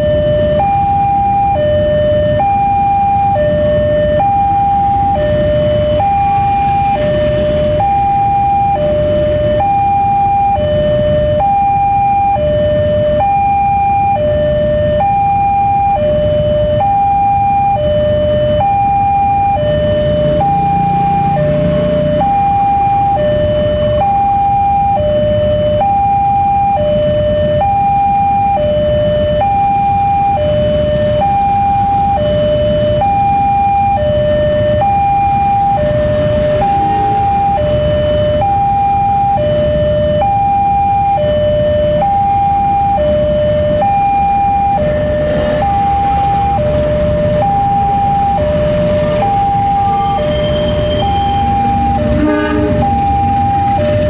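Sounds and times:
level crossing two-tone alarm: 0:00.0 - 0:54.0
motorcycle engines idling: 0:44.4 - 0:50.1, 0:51.3 - 0:54.0.

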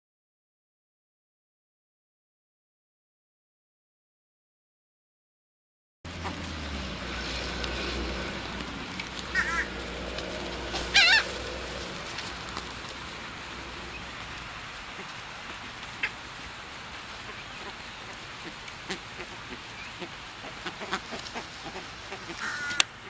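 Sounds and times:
ibis honking calls: 0:06.1 - 0:16.4, 0:17.1 - 0:23.0
low background rumble: 0:06.1 - 0:18.5.

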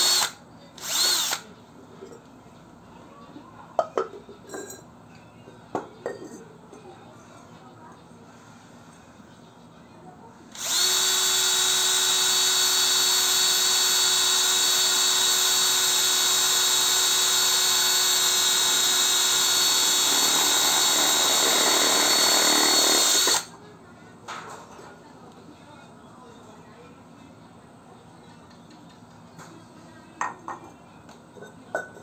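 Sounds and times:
cordless drill boring into clay: 0:00.0 - 0:01.4, 0:10.6 - 0:23.5.

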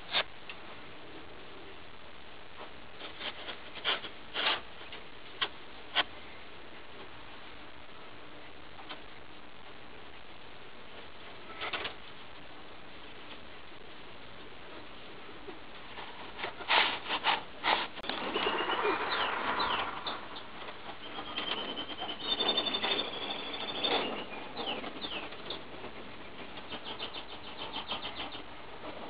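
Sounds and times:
bird calls: 0:18.0 - 0:28.6.

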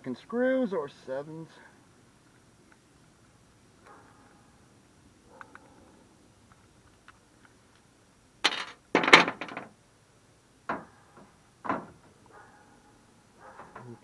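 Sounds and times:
metal tools knocking and clinking: 0:08.4 - 0:09.7
rattling metal clatter: 0:08.4 - 0:09.7.

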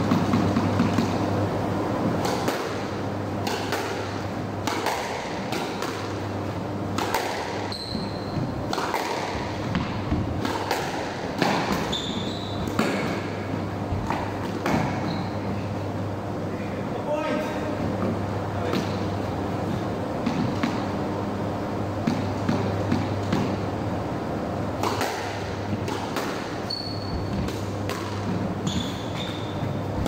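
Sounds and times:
squash ball hitting rackets and walls: 0:00.0 - 0:16.1, 0:17.6 - 0:30.0
shoes squeaking on wooden floor: 0:07.6 - 0:08.6, 0:11.8 - 0:12.7, 0:15.0 - 0:15.5, 0:26.6 - 0:27.5, 0:28.6 - 0:30.0.

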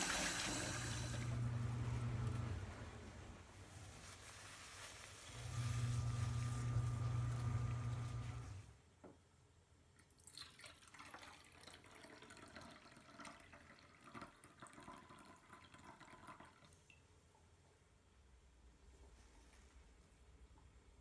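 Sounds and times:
liquid trickling and dripping: 0:10.0 - 0:17.0.

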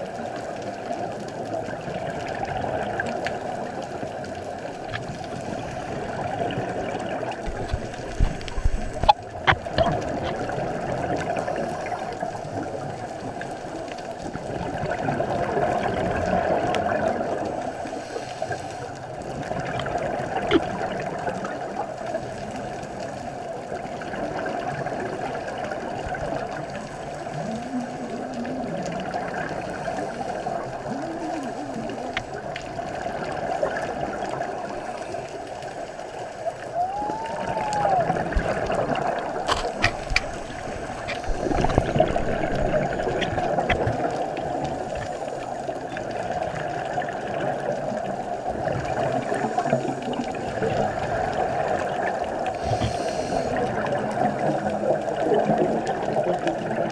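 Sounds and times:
underwater exhaled bubbles: 0:00.0 - 0:56.9.

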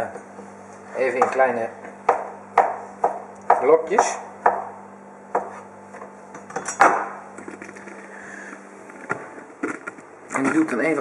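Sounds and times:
knife chopping on cutting board: 0:02.1 - 0:05.7.

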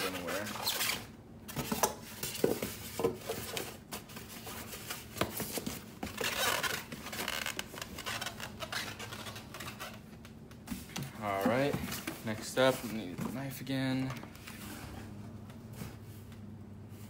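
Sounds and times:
cardboard scraping and rubbing: 0:00.0 - 0:10.0.

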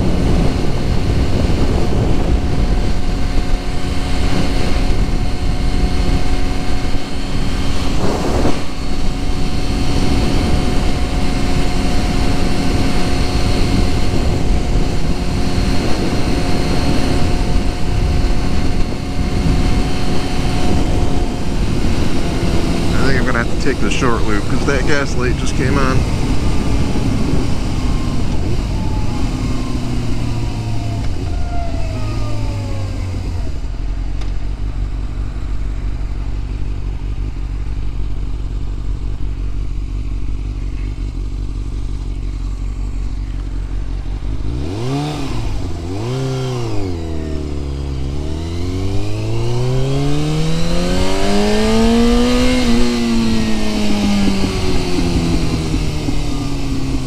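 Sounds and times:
motorcycle engine revving and idling: 0:00.0 - 0:57.0.

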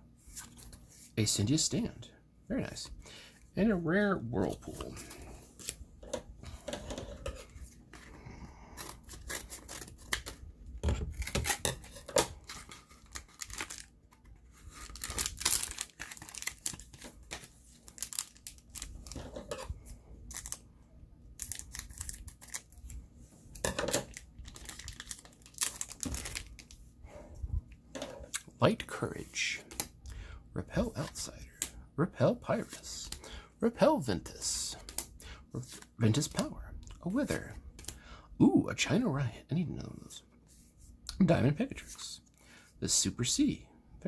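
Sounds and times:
wrapper tearing and crinkling: 0:11.1 - 0:19.5, 0:21.4 - 0:23.0, 0:24.0 - 0:26.7.

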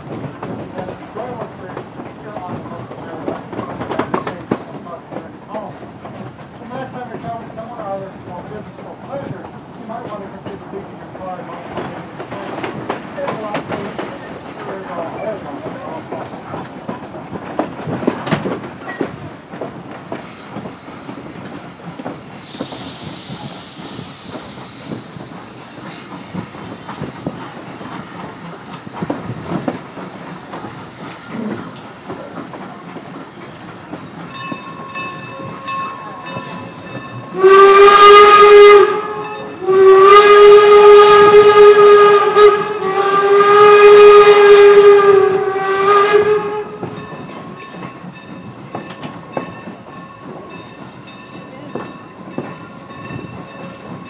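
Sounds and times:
train car rumbling on rails: 0:00.0 - 0:54.0
steam locomotive whistle: 0:37.3 - 0:47.1.

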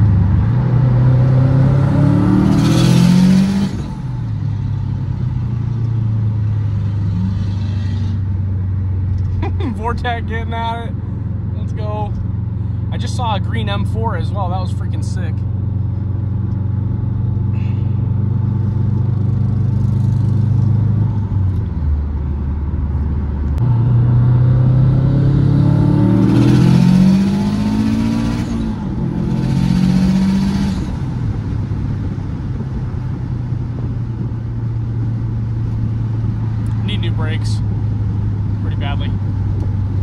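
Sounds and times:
turbocharged car engine revving: 0:00.0 - 0:04.2, 0:23.5 - 0:32.7.

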